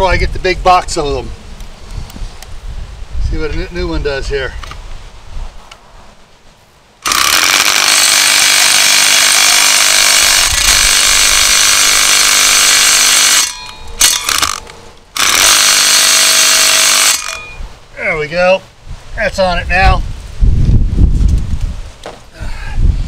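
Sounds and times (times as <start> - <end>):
impact driver driving a screw: 7.0 - 17.4.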